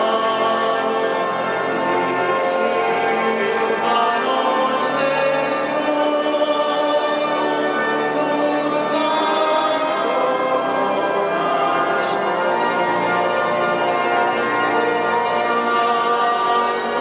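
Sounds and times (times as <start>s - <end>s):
pipe organ: 0.0s - 17.0s
choir singing a slow hymn: 2.3s - 12.2s.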